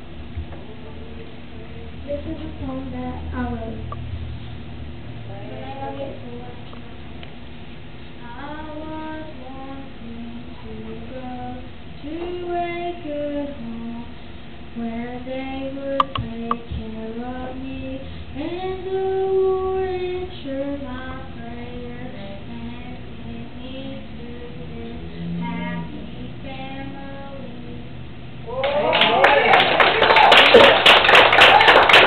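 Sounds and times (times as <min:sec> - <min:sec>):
girl singing into a microphone: 0:02.0 - 0:04.0, 0:05.2 - 0:06.9, 0:08.2 - 0:28.0
sharp clicks: 0:16.0 - 0:16.6.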